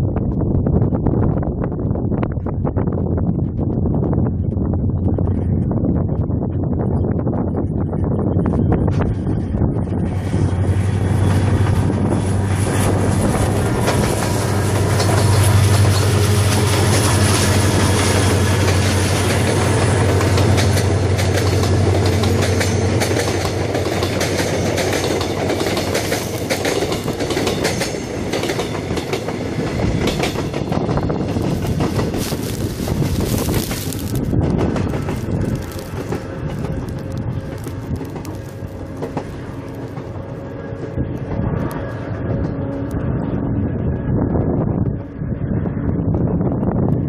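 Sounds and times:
diesel locomotive engine drone: 0.0 - 47.0
train wheels clickety-clack: 7.6 - 40.4.

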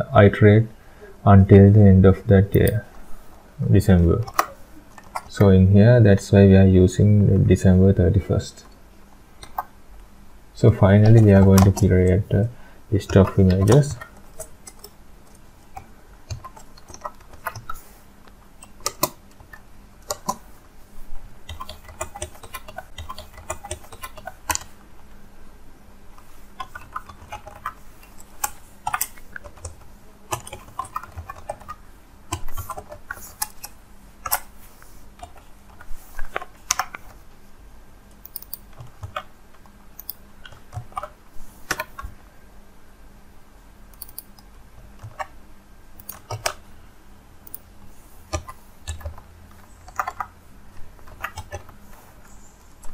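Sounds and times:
keyboard typing clicks: 4.2 - 5.4, 9.4 - 9.7, 13.0 - 17.8, 18.6 - 20.4, 21.5 - 24.8, 26.6 - 34.5, 38.1 - 42.1, 43.9 - 45.3, 46.0 - 46.6, 47.4 - 47.7, 48.3 - 50.3, 51.0 - 51.7.

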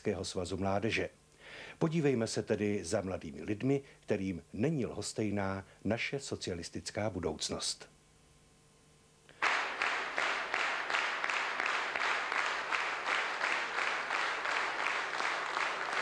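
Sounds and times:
audience applause in rhythm: 9.4 - 16.0.

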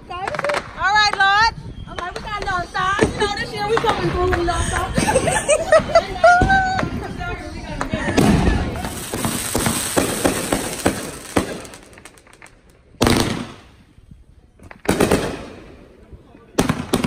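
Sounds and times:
fireworks crackling pops: 0.1 - 1.4, 7.8 - 13.9
fireworks loud bangs: 7.9 - 13.9.

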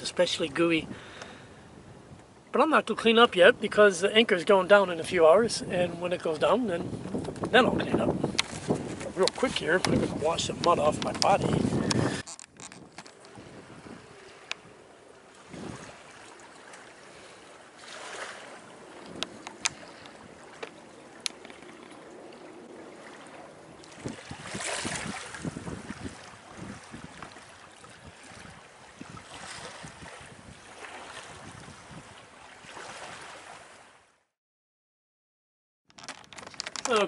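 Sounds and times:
wind buffeting microphone: 0.0 - 16.4, 18.4 - 32.4
water splashing along a boat hull: 0.0 - 34.2, 35.9 - 37.0.

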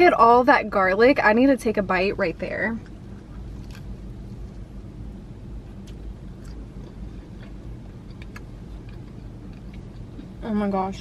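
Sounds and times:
steady low hum: 0.0 - 11.0
biting and chewing crust: 2.8 - 4.6, 5.7 - 10.4.

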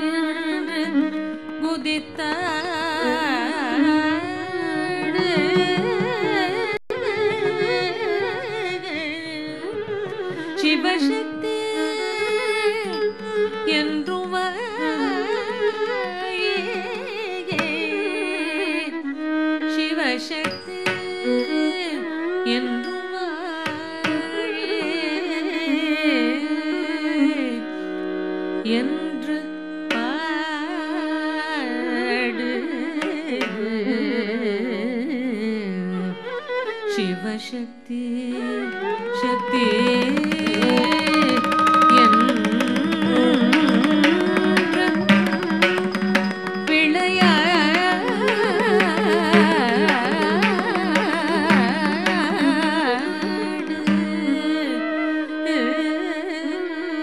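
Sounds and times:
person singing ornamented melody: 37.0 - 56.7
held accompanying tones: 38.6 - 55.8.

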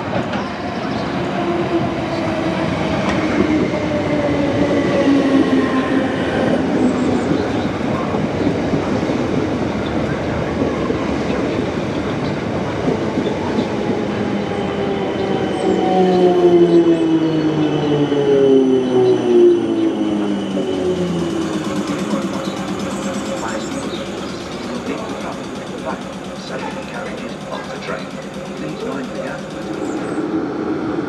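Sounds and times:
train wheel-on-rail noise: 0.0 - 31.0
train motor whine: 13.6 - 30.4.

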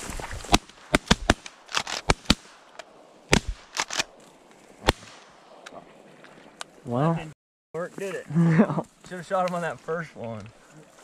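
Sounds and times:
shotgun shots: 0.5 - 2.7, 3.3 - 4.1, 4.8 - 5.4.

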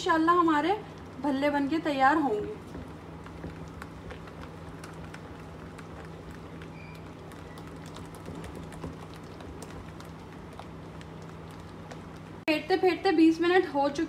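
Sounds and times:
steady low hum: 0.0 - 14.0
batter slapping and squelching: 2.3 - 12.4.

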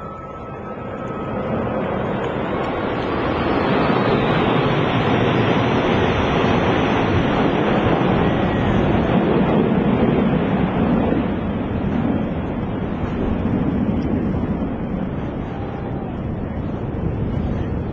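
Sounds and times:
jet engines flying overhead: 0.0 - 17.9.

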